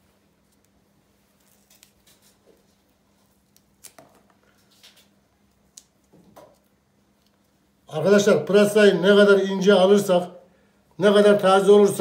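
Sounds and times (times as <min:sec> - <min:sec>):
leek being peeled: 0:00.0 - 0:07.6.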